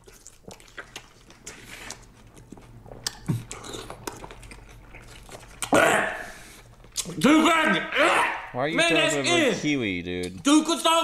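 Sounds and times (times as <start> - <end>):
person chewing crunchy food: 0.0 - 7.2
loud voice: 7.2 - 9.7.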